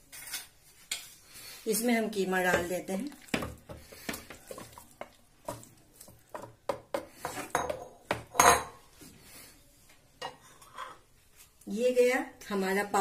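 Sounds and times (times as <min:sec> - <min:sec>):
wooden spatula scraping and knocking bowl: 0:02.4 - 0:08.8.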